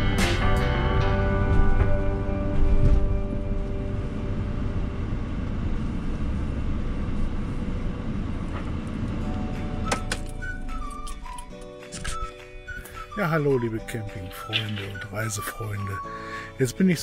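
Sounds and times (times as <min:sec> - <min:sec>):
engine and tyre rumble: 0:00.0 - 0:13.1.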